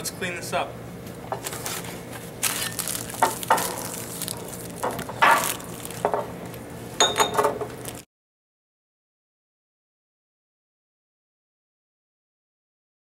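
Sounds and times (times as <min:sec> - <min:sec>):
ringing clink: 0:07.0 - 0:07.4
dishes and cutlery clattering: 0:07.0 - 0:07.7.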